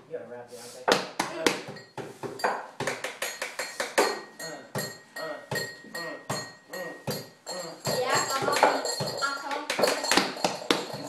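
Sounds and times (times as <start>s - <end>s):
hands drumming on tabletop: 7.1s - 11.0s.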